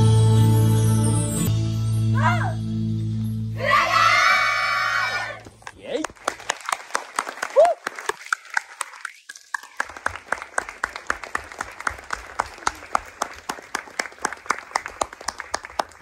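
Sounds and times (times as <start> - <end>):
audience applauding: 5.0 - 16.0
close sharp hand claps: 5.4 - 16.0.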